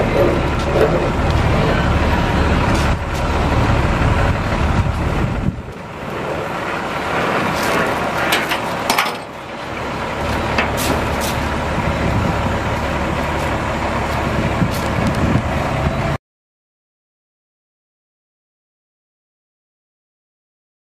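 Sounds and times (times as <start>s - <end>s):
diesel truck engine idling: 0.0s - 16.2s
wind buffeting microphone: 0.0s - 16.2s
sharp clicks and knocks: 10.5s - 11.1s.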